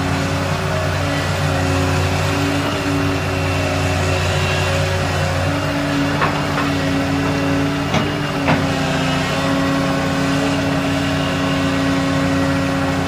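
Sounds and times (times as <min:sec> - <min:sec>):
excavator diesel engine and hydraulics: 0:00.0 - 0:13.0
short clunks: 0:06.0 - 0:08.8.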